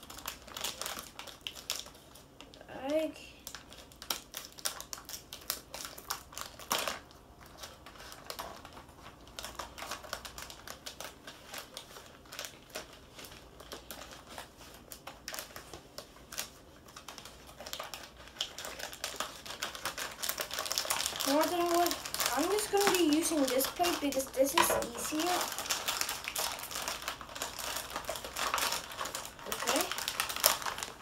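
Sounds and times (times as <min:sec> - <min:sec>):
plastic bag rustling: 0:03.4 - 0:31.0
scissors snipping plastic: 0:19.6 - 0:26.6.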